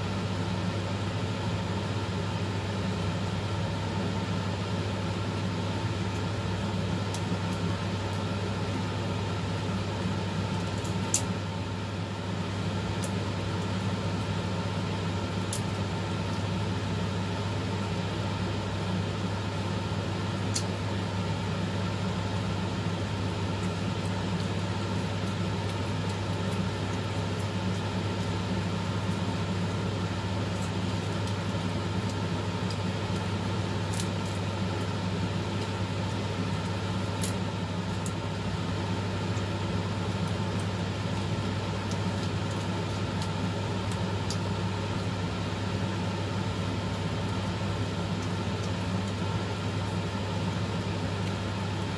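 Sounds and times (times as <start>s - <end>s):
low machine hum: 0.0s - 51.9s.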